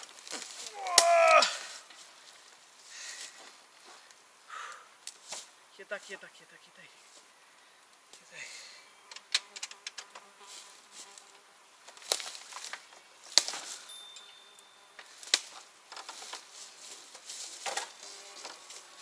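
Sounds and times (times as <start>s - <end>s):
flying insects buzzing: 7.0s - 19.0s.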